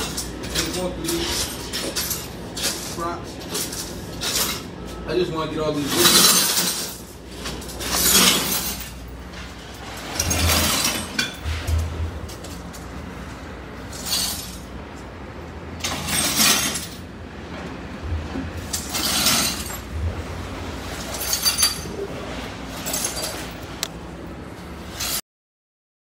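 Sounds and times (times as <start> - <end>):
broken glass scraping on floor: 6.0 - 9.0, 9.8 - 11.9, 15.8 - 17.0, 18.6 - 19.9, 20.8 - 21.9.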